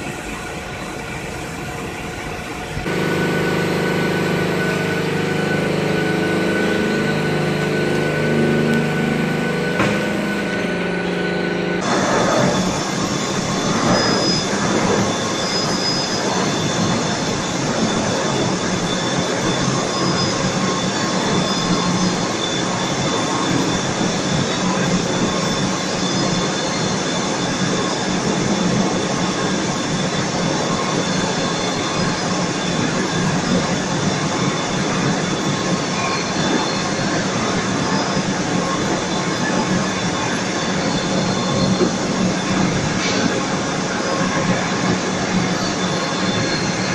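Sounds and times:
faint high whine: 0:00.0 - 0:46.9
low hum: 0:02.8 - 0:17.4
cable stranding machine running: 0:02.8 - 0:46.9.

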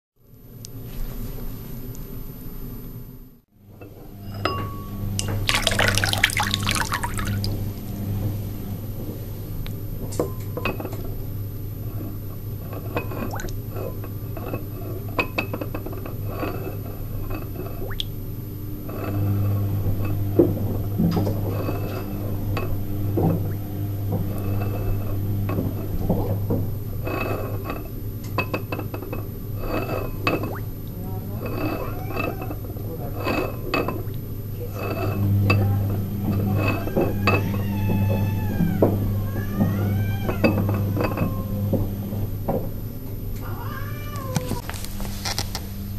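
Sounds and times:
steady low hum: 0:00.2 - 0:43.5
water sloshing and gurgling: 0:05.2 - 0:07.8, 0:12.8 - 0:13.9, 0:17.3 - 0:18.2.

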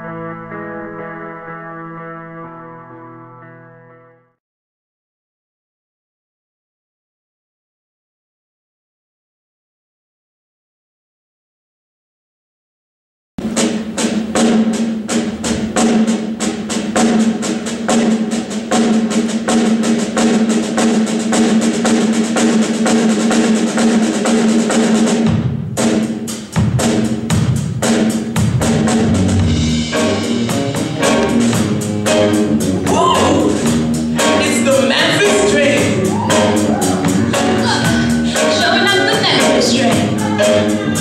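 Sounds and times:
band playing: 0:00.0 - 0:04.2, 0:13.4 - 0:41.0
drum kit beating fast: 0:13.4 - 0:41.0
person singing: 0:32.8 - 0:41.0.

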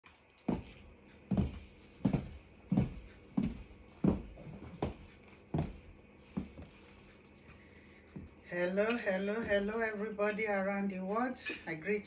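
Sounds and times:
slow footsteps on a floor: 0:00.1 - 0:07.4, 0:08.0 - 0:08.5.

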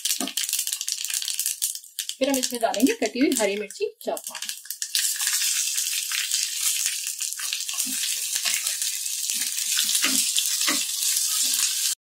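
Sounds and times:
oil sizzling in a pan: 0:00.0 - 0:12.0
seeds crackling and popping: 0:00.0 - 0:12.0
spoon knocking against a pan: 0:09.9 - 0:10.9.

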